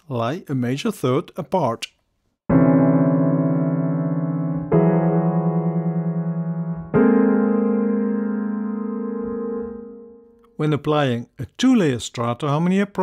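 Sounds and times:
dissonant keyboard chords: 2.5 - 10.5.

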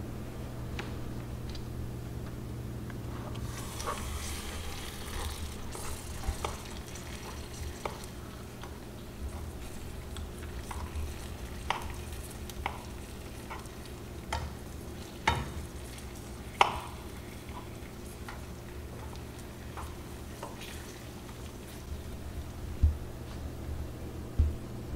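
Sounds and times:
sugar syrup bubbling and sizzling: 3.4 - 22.6.

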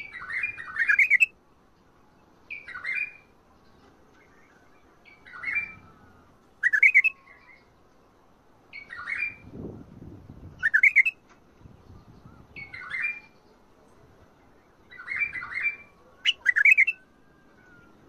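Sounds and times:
bulbul singing: 0.0 - 1.4, 2.2 - 7.8, 10.4 - 13.6, 14.4 - 18.0.

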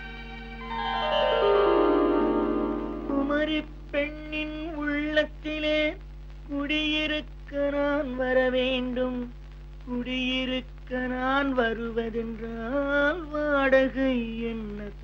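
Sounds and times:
wordless vocal melody: 0.0 - 5.4
faint low recording hum: 0.0 - 15.0.

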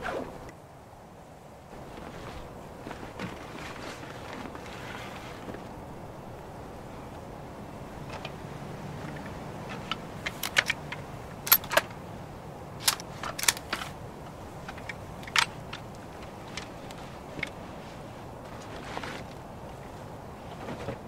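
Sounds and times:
metallic clicks of rifle handling: 9.1 - 12.0, 12.8 - 14.0.

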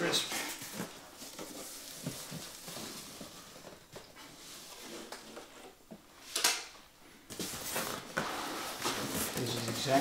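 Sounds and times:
cardboard scraping and rustling: 7.3 - 10.0.

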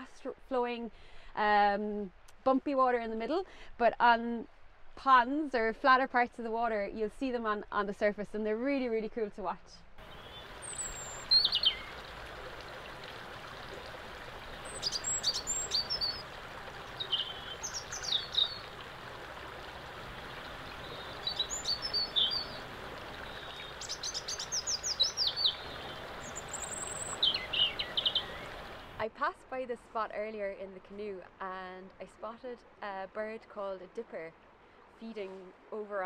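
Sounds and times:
river water running over rocks: 10.0 - 29.0
songbirds chirping: 10.0 - 29.0.

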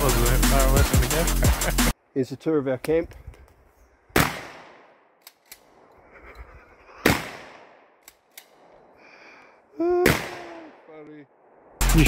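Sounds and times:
shotgun shot echoing: 4.1 - 5.0, 7.0 - 7.9, 10.0 - 10.6.

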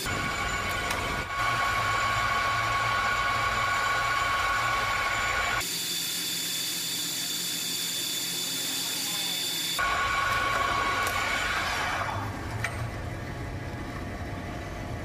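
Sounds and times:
metal lathe whining: 0.0 - 12.7.

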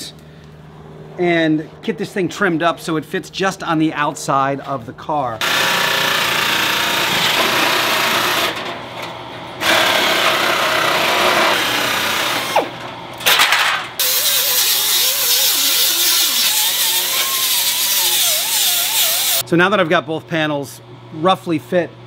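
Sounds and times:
power tool cutting steel: 5.4 - 8.6, 9.6 - 12.8, 14.0 - 19.4.

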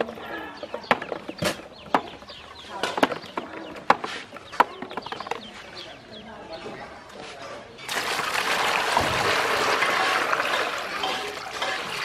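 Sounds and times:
birds chirping: 0.0 - 8.0.

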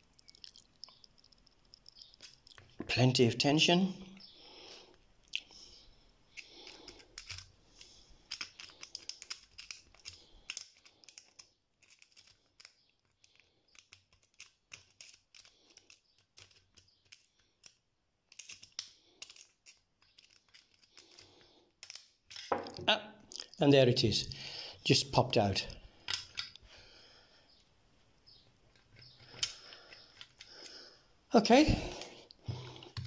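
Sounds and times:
lock pick clicking and scraping: 6.4 - 22.5, 26.0 - 26.6, 28.7 - 30.8.

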